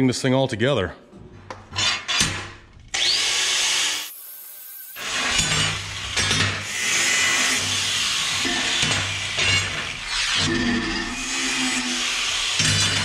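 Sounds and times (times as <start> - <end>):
angle grinder grinding steel: 3.0 - 13.0.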